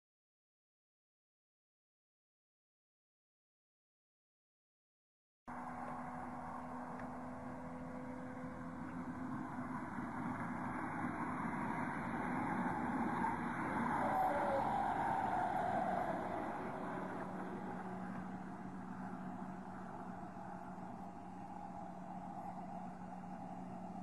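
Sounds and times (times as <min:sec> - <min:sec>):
car speeding past: 0:06.0 - 0:24.0.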